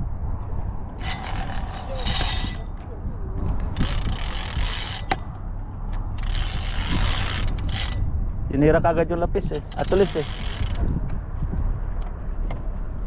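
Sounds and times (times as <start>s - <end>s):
wind rumble on microphone: 0.0s - 13.0s
fishing reel whirring: 1.0s - 2.8s, 3.7s - 5.4s, 6.1s - 8.0s, 9.6s - 10.8s.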